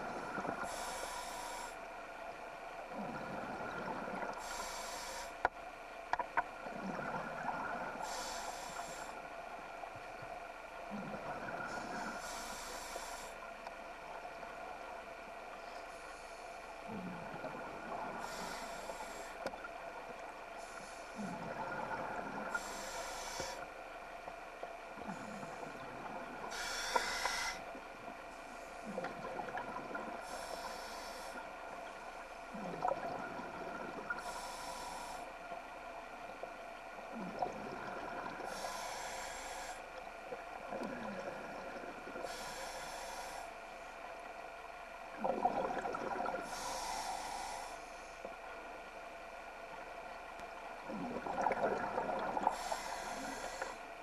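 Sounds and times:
steady hum: 0.0s - 54.0s
bubbles rumbling: 6.6s - 8.0s, 28.9s - 30.2s, 32.5s - 34.2s, 37.1s - 38.6s, 45.2s - 46.5s, 50.8s - 52.9s
regulator hissing on inhalation: 26.5s - 27.6s, 52.5s - 53.8s.

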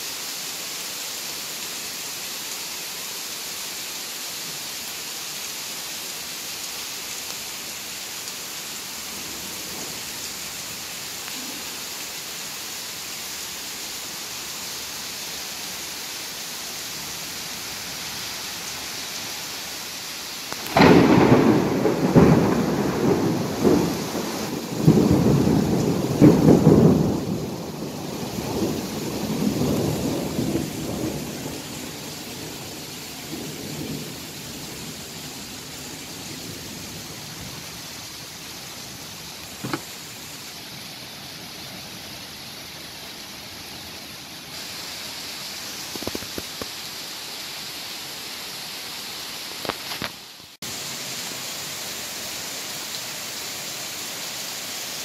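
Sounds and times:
heavy rain hissing: 0.0s - 55.0s
thunder crack and rumble: 20.5s - 34.9s.

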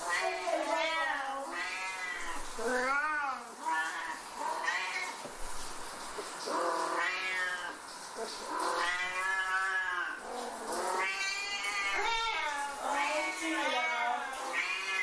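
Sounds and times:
cats yowling: 0.0s - 5.3s, 6.4s - 15.0s.

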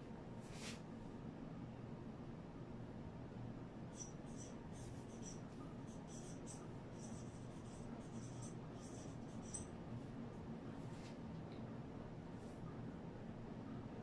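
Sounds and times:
low steady hum: 0.0s - 14.0s
marker squeaking on a whiteboard: 4.0s - 9.7s.

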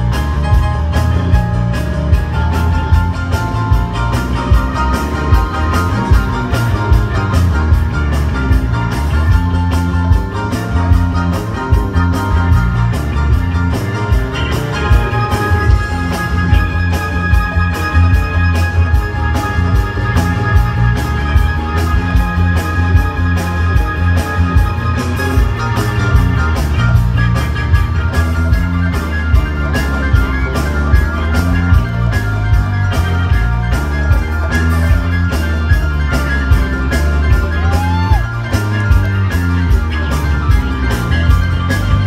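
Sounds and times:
drum kit: 0.0s - 42.0s
electric guitars: 0.0s - 42.0s
piano: 0.0s - 42.0s.

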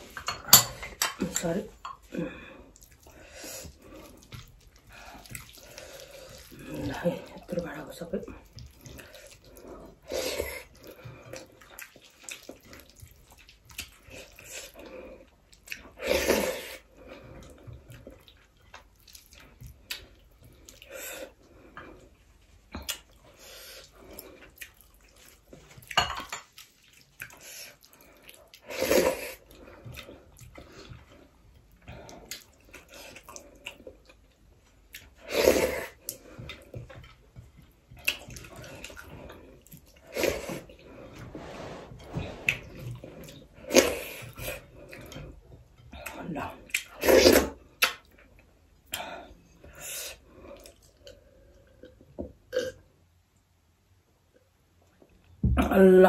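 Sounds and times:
wet chewing and lip smacking: 2.7s - 6.6s, 8.4s - 16.0s, 17.4s - 21.4s, 23.8s - 28.6s, 29.3s - 35.2s, 35.9s - 40.8s, 42.5s - 49.0s.

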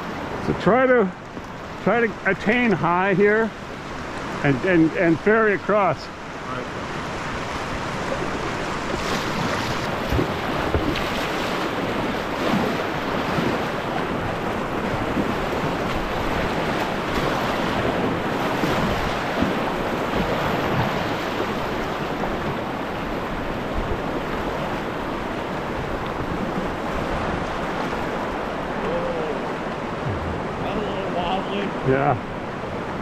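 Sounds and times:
whitewater rushing: 0.0s - 33.0s
paddle strokes splashing: 1.1s - 32.9s
wind buffeting microphone: 6.8s - 30.8s.

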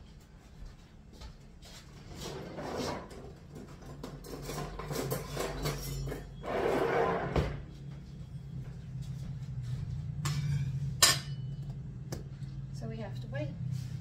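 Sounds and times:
kitchen clattering and knocking: 2.7s - 6.4s, 10.2s - 11.8s.

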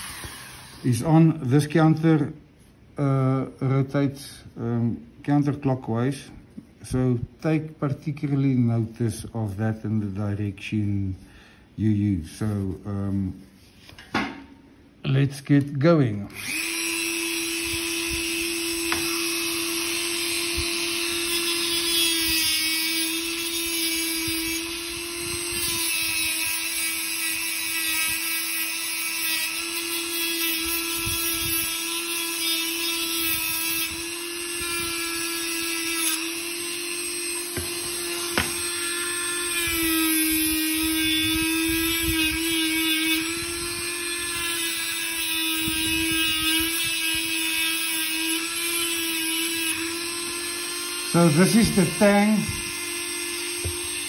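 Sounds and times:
rotary tool whining: 0.0s - 1.1s, 16.3s - 54.0s.

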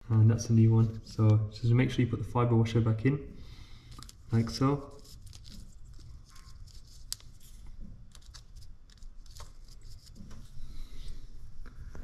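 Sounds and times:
plastic bag rustling: 3.9s - 10.6s.

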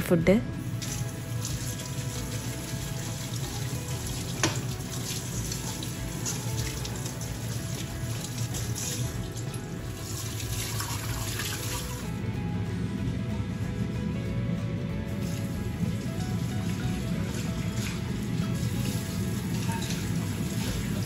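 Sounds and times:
faint background music: 0.0s - 21.0s
tap water running into sink: 0.7s - 12.1s, 15.2s - 21.0s
metal utensils clinking: 18.6s - 21.0s.

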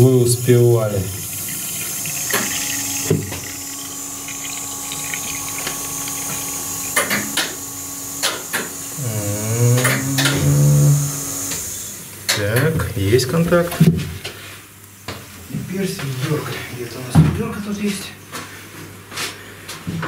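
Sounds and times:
liquid pouring hiss: 0.0s - 12.1s
electric pump humming: 0.0s - 14.0s.

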